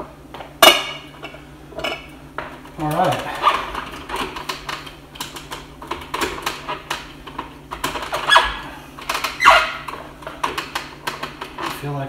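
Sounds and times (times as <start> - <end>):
plastic parts clicking and clattering: 2.8 - 11.8.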